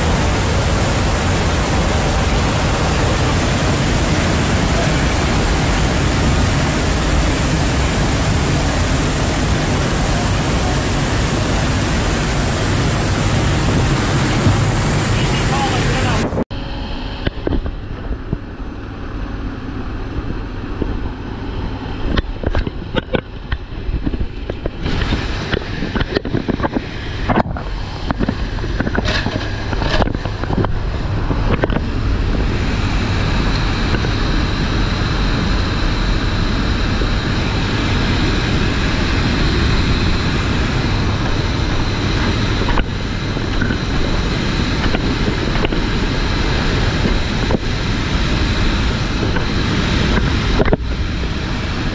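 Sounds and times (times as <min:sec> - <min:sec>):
rushing air: 0:00.0 - 0:51.9
turboprop engines droning: 0:00.0 - 0:51.9.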